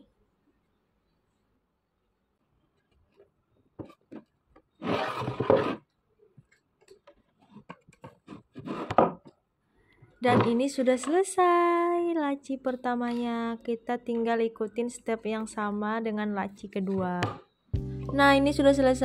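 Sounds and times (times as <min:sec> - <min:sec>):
rasping rub: 0:04.8 - 0:05.8.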